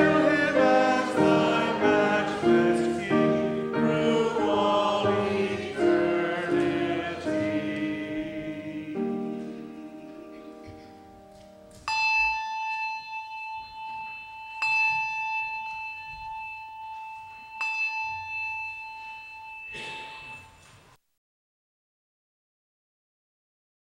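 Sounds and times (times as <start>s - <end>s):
bell ringing: 0.0s - 7.5s, 11.0s - 20.8s.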